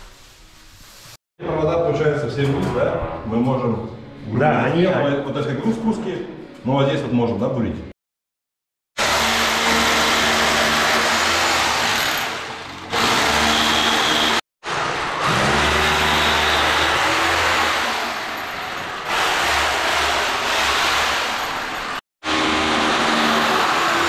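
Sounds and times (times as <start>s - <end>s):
hammer drill grinding: 9.0s - 24.0s.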